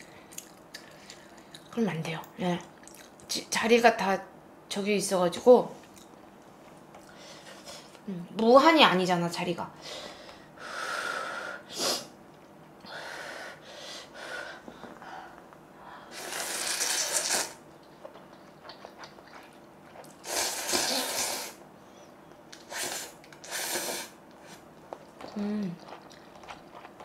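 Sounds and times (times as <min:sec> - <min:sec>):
person breathing: 0:12.8 - 0:16.2
person slurping noodles: 0:16.1 - 0:17.6, 0:20.2 - 0:21.6, 0:22.6 - 0:24.6.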